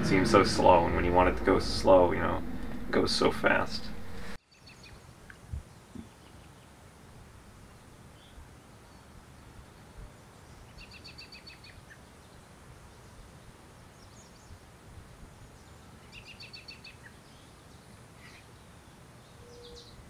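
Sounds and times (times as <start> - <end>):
low background noise: 0.0 - 20.0
songbird singing repeated notes: 10.4 - 12.4, 15.6 - 20.0.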